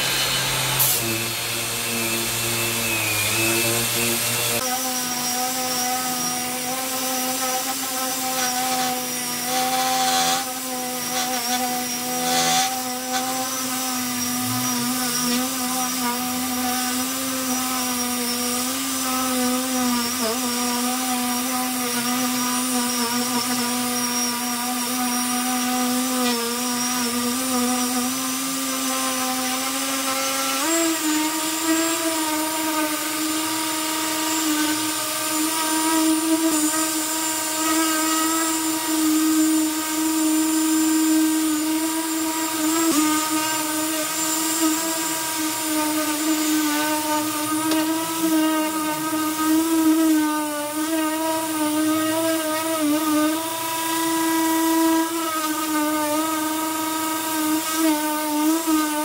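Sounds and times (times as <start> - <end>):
orbital sander sanding wood: 0.0 - 59.0.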